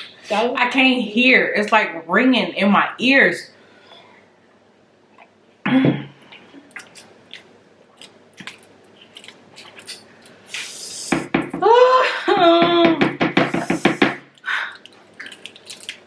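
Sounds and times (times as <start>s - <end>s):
wet mouth clicks and smacks: 6.3s - 10.6s
woman wailing: 11.6s - 13.1s
woman's vocal outburst: 11.6s - 13.7s.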